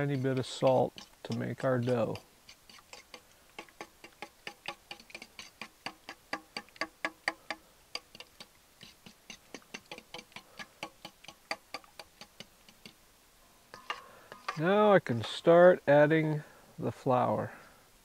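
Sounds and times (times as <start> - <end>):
fork whisking batter in metal bowl: 0.0 - 13.0, 13.7 - 14.6.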